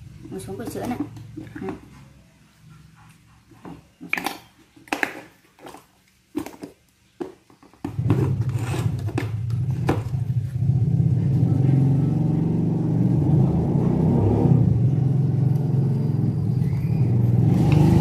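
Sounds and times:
vehicle engine rumble: 8.0 - 18.0.

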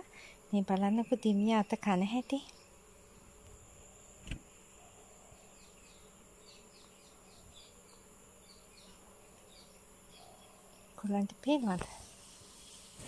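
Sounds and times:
insects whining: 0.0 - 13.0.

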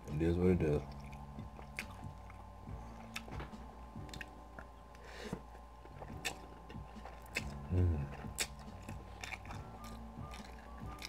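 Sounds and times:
chewing noodles: 0.8 - 5.0, 5.8 - 11.0
wet mouth clicks: 4.1 - 4.7, 6.1 - 11.0.

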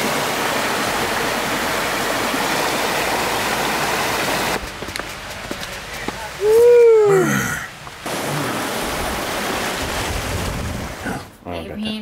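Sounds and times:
stream rushing over rocks: 0.0 - 11.3.

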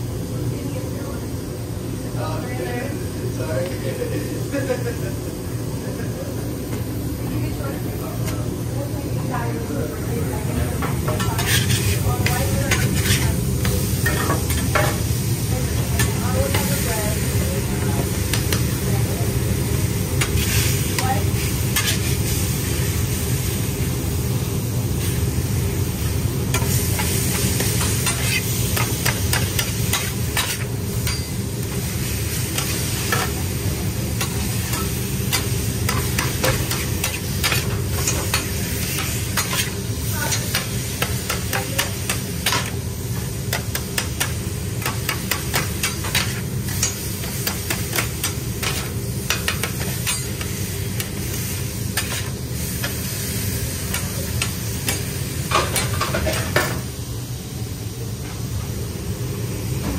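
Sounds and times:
chicken sizzling on griddle: 8.9 - 59.9
spatulas scraping and tapping: 10.8 - 15.0, 26.5 - 31.8, 32.5 - 33.4, 34.2 - 51.2.

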